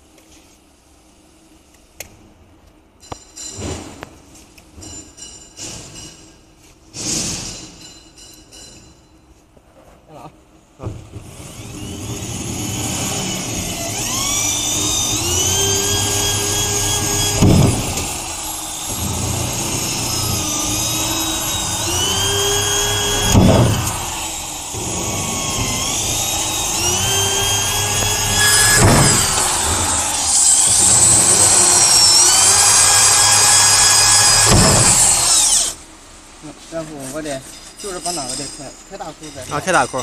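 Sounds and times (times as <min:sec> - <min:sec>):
electric drill motor whine: 0:11.2 - 0:35.8
loud grinding burst: 0:11.2 - 0:35.8.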